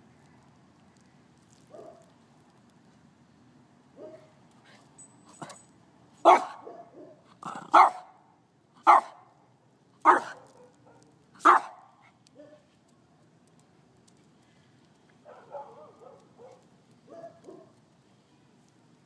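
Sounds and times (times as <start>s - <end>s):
puppy barking: 4.0s - 4.3s, 6.2s - 8.1s, 8.8s - 9.2s, 10.0s - 12.6s, 15.3s - 17.7s.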